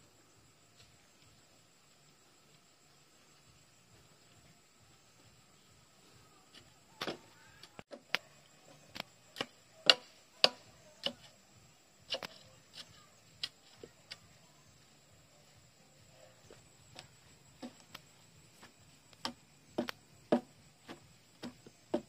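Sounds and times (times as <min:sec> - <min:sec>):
wooden stick knocking into ground: 0:06.5 - 0:08.3, 0:08.9 - 0:11.3, 0:12.1 - 0:14.2, 0:16.9 - 0:22.0.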